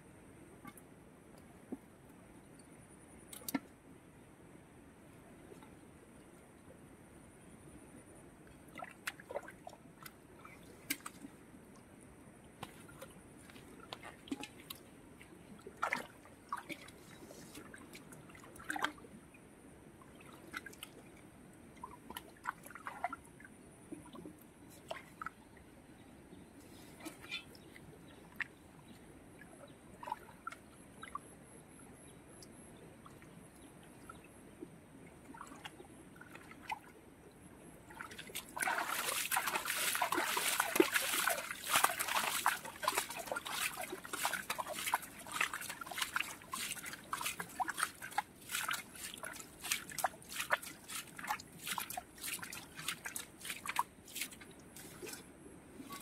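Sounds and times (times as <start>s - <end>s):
hands splashing in muddy puddle: 38.0s - 55.2s.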